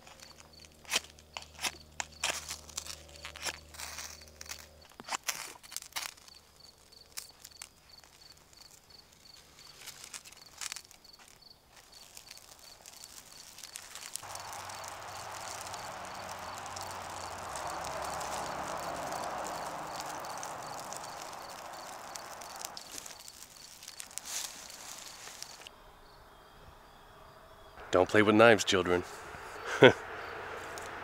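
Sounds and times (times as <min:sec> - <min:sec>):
crunching footsteps: 0:00.0 - 0:25.7
insect chirping: 0:00.0 - 0:31.0
rushing noise: 0:14.2 - 0:25.7, 0:27.8 - 0:31.0.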